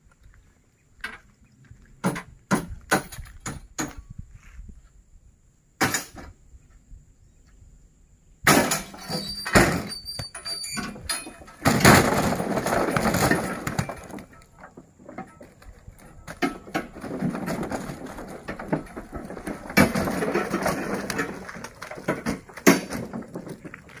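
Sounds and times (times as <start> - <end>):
fruit bunches thudding onto heap: 11.0 - 23.7.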